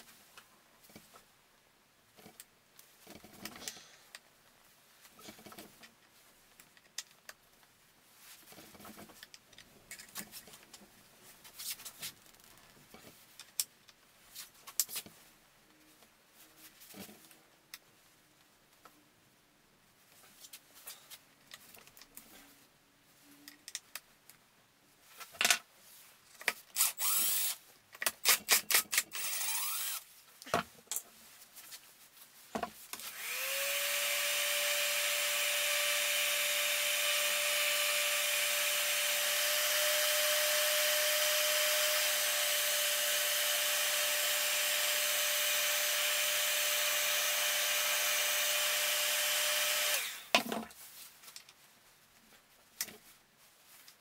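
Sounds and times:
heat gun fan whining: 0:33.1 - 0:50.3.

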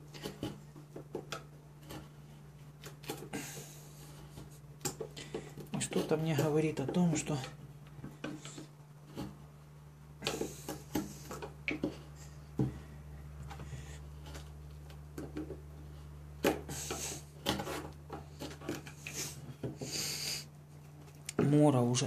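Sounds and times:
knife shaving wood: 0:00.0 - 0:07.5, 0:10.2 - 0:21.2
steady low hum: 0:00.0 - 0:22.0.

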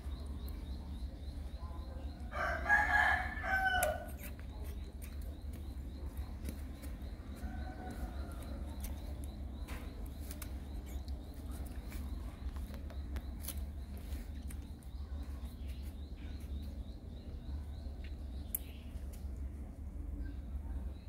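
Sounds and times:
rooster crowing: 0:02.3 - 0:04.2.

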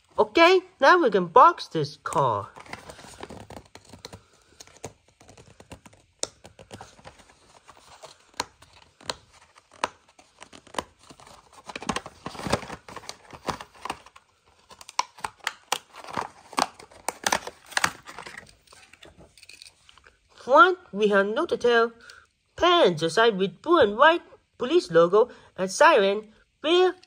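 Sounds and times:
blister pack being torn open: 0:07.9 - 0:18.9.

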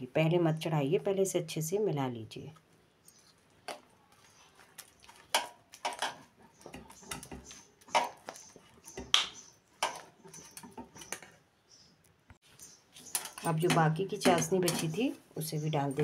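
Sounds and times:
metal spoon scraping metal pan: 0:13.0 - 0:15.1.

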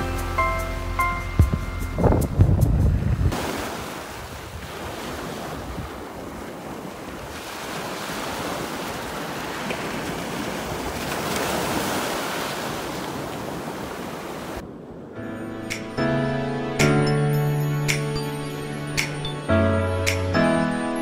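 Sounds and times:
wind buffeting microphone: 0:01.4 - 0:07.5
waves breaking on pebble beach: 0:03.3 - 0:14.6.

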